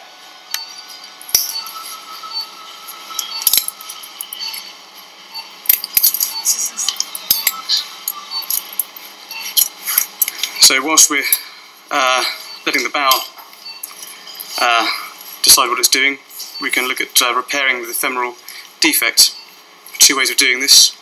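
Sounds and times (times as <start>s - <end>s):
metal instruments clinking: 1.2s - 2.0s, 2.9s - 4.7s, 5.6s - 10.6s.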